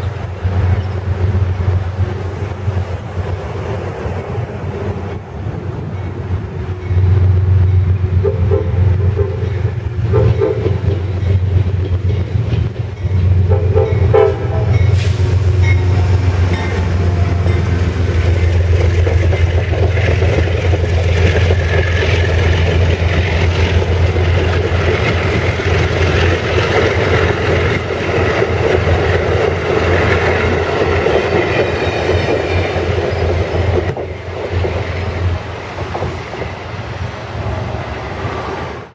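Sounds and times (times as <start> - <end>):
locomotive horn blasts: 8.2 - 11.1, 13.4 - 17.8
train wheels clattering over rail joints: 8.8 - 37.1.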